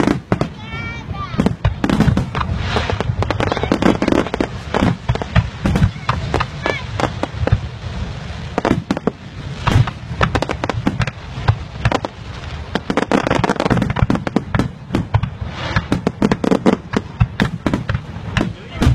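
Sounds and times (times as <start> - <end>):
fireworks bangs and pops: 0.0 - 18.9.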